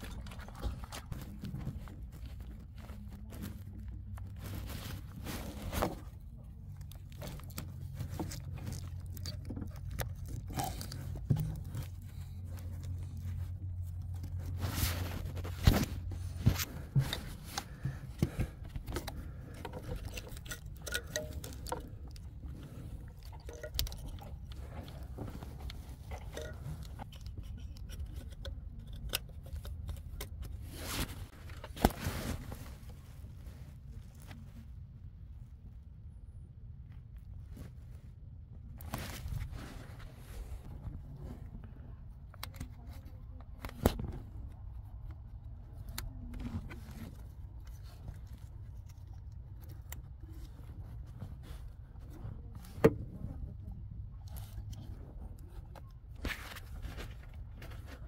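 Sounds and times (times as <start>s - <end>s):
metallic clicks and scrapes: 0.0s - 32.7s
low steady hum: 0.0s - 58.0s.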